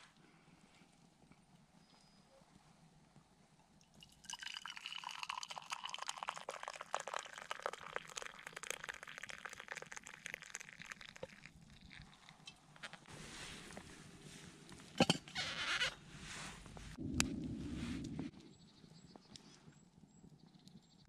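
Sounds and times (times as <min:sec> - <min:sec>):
coffee pouring into mug: 0:04.0 - 0:12.5.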